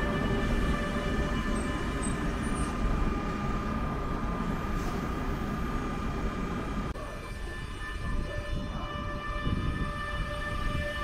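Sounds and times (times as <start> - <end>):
train rumbling past: 0.0 - 7.7.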